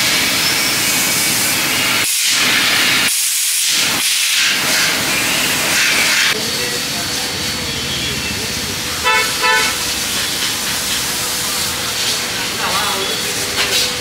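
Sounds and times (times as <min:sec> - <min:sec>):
loud steady hiss: 0:00.0 - 0:14.0.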